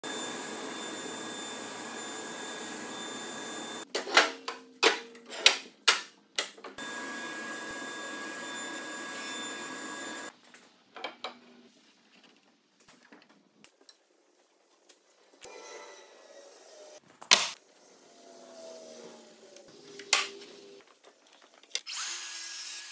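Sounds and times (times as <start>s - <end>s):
table saw running: 0.0s - 3.9s, 6.8s - 10.3s.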